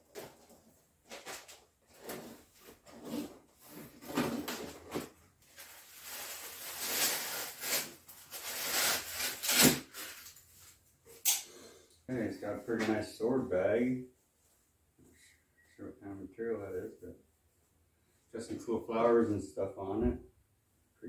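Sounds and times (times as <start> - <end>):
cardboard scraping and rustling: 0.1 - 7.9.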